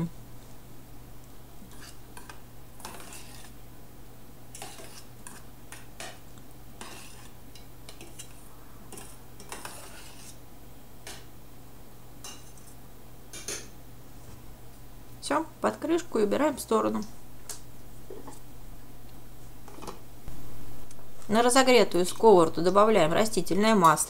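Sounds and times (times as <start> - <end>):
fork scraping a metal saucepan: 1.7 - 3.6, 4.6 - 6.2, 6.8 - 10.4.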